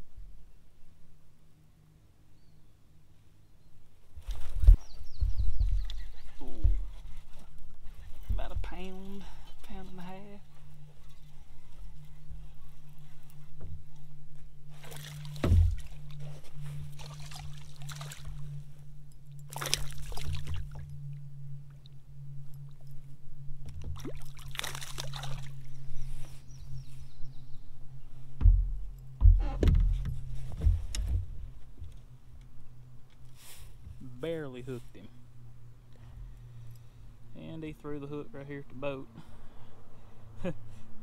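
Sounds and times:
fish splashing in water: 0:14.8 - 0:16.1, 0:16.9 - 0:18.4, 0:19.5 - 0:20.8, 0:24.0 - 0:25.6
thumps against kayak: 0:15.3 - 0:16.0, 0:28.4 - 0:31.9.

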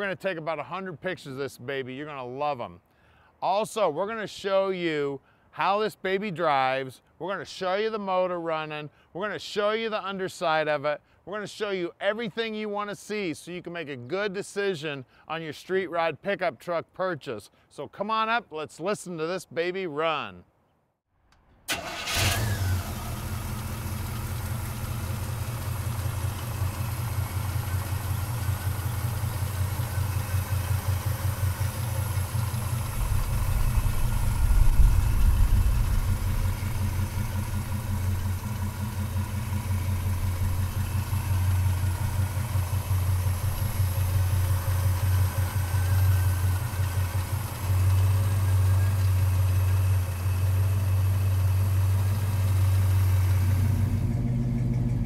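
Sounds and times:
pickup engine idling with deep rumble: 0:22.1 - 0:55.0.

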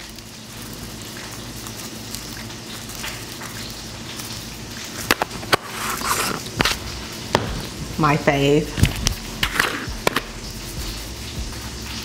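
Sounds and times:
butter sizzling in a frying pan: 0:00.0 - 0:12.0.

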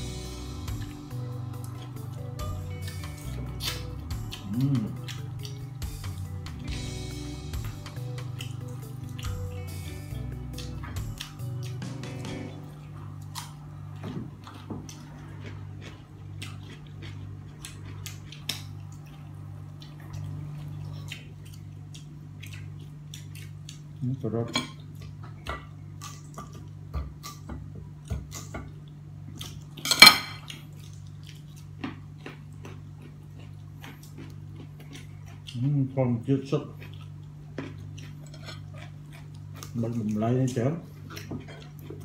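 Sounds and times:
low hum: 0:00.0 - 0:22.9
tableware clicks and taps: 0:29.9 - 0:30.4
dishes clattering: 0:29.9 - 0:30.5.

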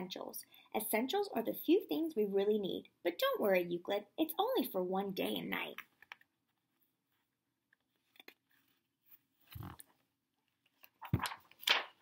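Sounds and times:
book page turning: 0:07.7 - 0:12.0
paper rustling: 0:07.8 - 0:12.0.

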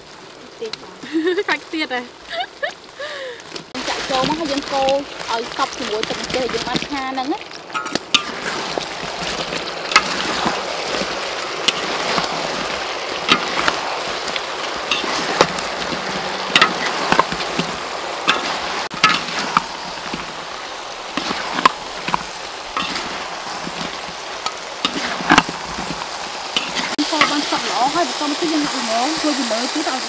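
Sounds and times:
sizzle in a wok: 0:00.0 - 0:30.0
metal spatulas scraping a wok: 0:07.8 - 0:13.8, 0:14.9 - 0:20.4, 0:21.1 - 0:22.2, 0:22.8 - 0:27.6.

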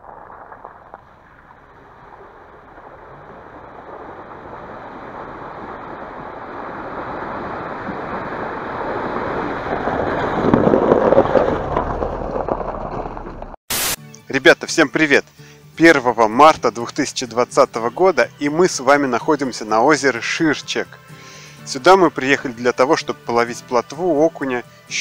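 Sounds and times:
car tyres splashing through water: 0:00.0 - 0:13.6.

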